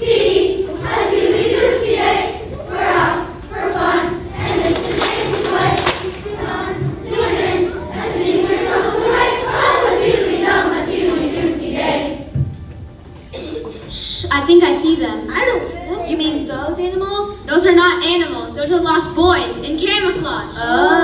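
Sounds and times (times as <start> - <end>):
children's choir singing: 0.0 - 13.5, 19.0 - 21.0.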